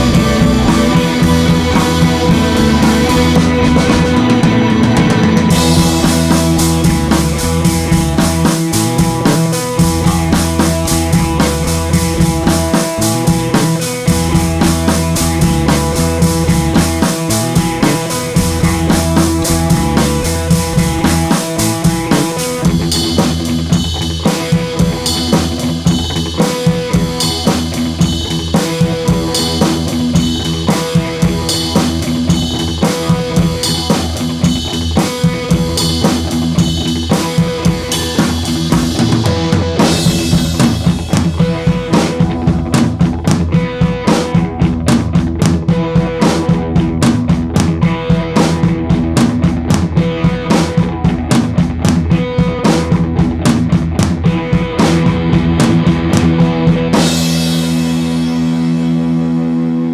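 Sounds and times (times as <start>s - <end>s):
band music with steady beat: 0.0s - 59.8s.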